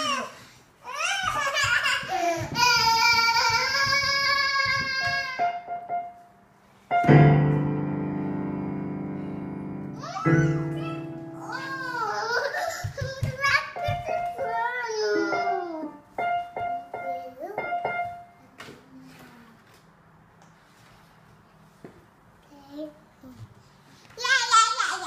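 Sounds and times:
piano keys struck hard: 7.0s - 12.4s
small child's wavering voice: 10.0s - 16.0s.

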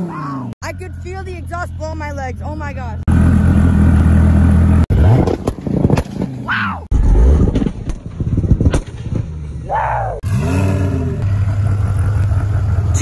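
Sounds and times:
engine revving: 2.8s - 8.6s, 9.4s - 13.0s.

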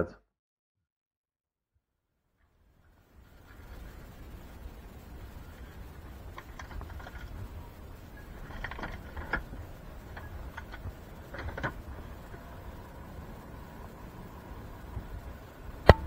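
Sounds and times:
small clicks and knocks: 5.5s - 12.8s.

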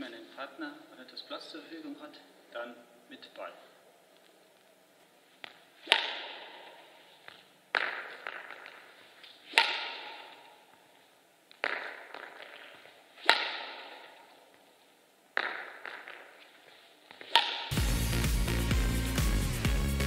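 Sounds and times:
racket striking shuttlecock: 5.4s - 10.9s, 11.5s - 14.7s, 15.3s - 17.8s.

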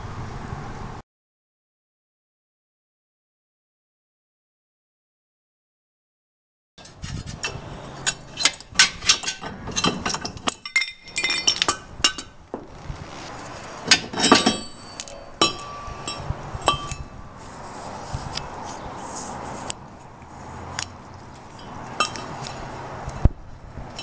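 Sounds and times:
metallic clinks and knocks: 6.8s - 17.2s, 21.5s - 22.4s.

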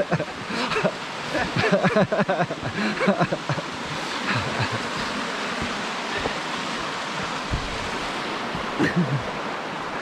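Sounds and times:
river water rushing over rocks: 0.0s - 10.0s
footsteps on path: 4.9s - 8.8s.

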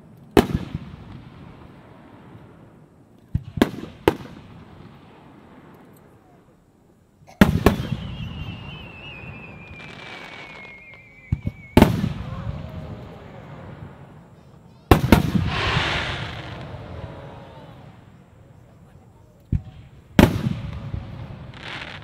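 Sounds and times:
firework bangs: 0.4s - 5.8s, 7.3s - 18.6s, 19.5s - 22.0s
falling warbling whistle: 7.7s - 12.6s.

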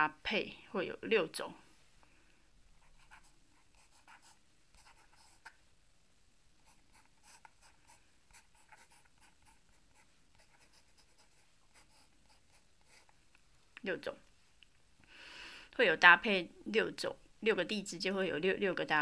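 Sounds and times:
marker scratching on paper: 2.8s - 5.6s, 6.6s - 13.2s.

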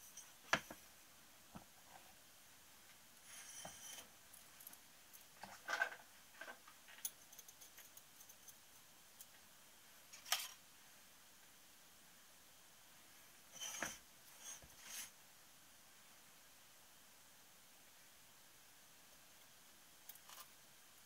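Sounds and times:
light clicks and scrapes of metal rings: 0.0s - 0.8s, 3.2s - 9.3s, 13.5s - 15.1s.

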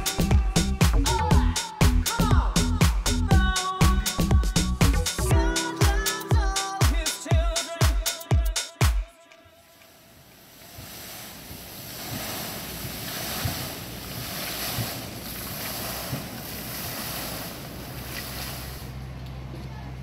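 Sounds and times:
fountain water splashing: 9.8s - 19.4s.

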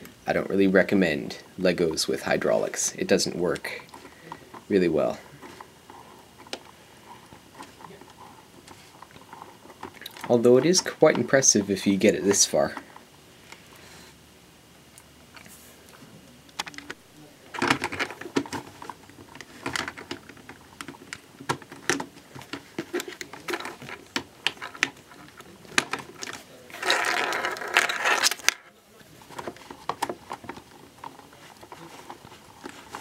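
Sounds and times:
plastic parts clicking together: 16.5s - 28.7s, 29.3s - 33.0s.

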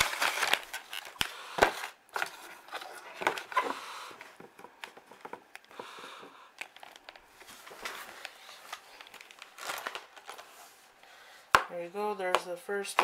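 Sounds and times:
plastic packaging crinkling: 0.0s - 3.6s, 6.6s - 10.6s.

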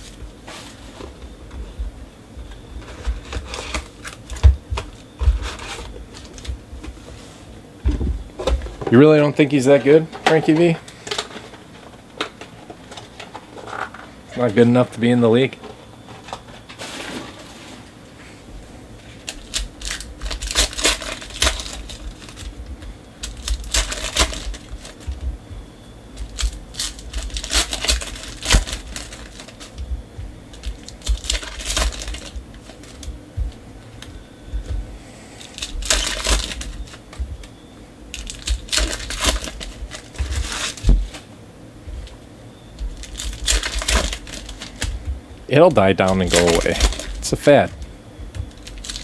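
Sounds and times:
foil wrapper crinkling and tearing: 19.1s - 25.4s, 26.1s - 34.8s, 35.4s - 37.5s, 38.1s - 41.3s, 42.8s - 49.0s.

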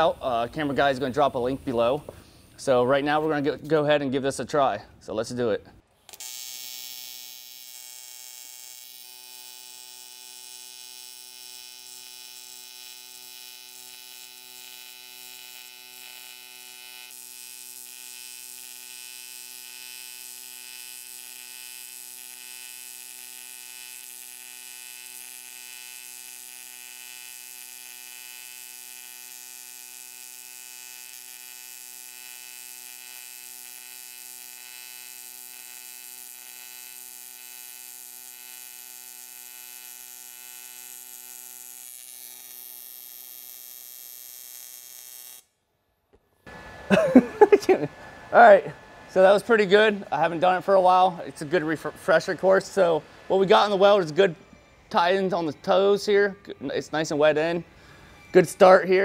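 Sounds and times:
welding arc buzzing and hissing: 6.1s - 45.6s.

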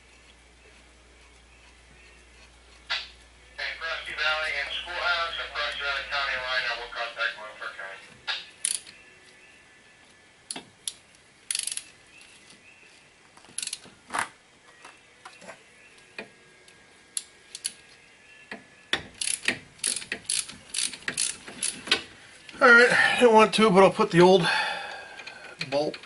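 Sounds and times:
ratchet wrench clicking: 8.6s - 8.9s, 10.5s - 11.9s, 13.5s - 13.9s, 17.1s - 17.8s, 19.0s - 22.0s.

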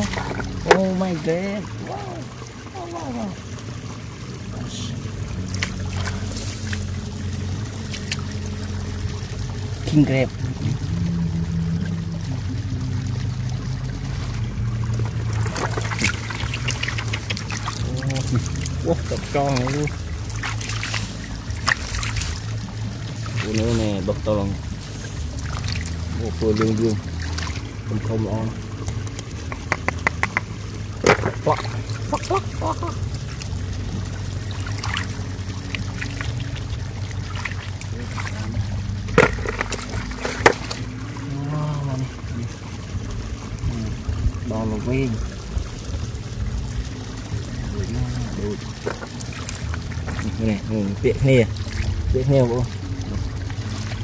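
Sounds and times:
shallow water trickling and splashing: 0.0s - 54.0s
steady low hum: 0.0s - 54.0s
hands splashing in muddy water: 13.2s - 24.0s, 24.8s - 27.8s, 28.9s - 33.6s, 34.4s - 41.1s
sharp ticks: 28.8s - 30.5s.

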